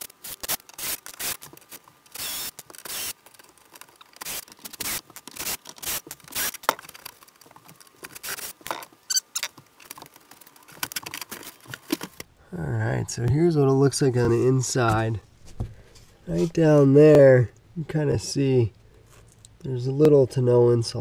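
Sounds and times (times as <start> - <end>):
cordless drill running: 2.2 - 3.2
brief squeak: 9.1 - 9.5.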